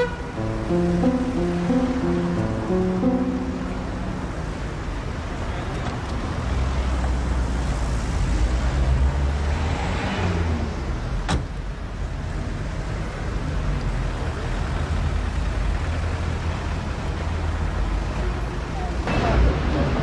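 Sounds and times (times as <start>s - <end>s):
street traffic: 0.0s - 20.0s.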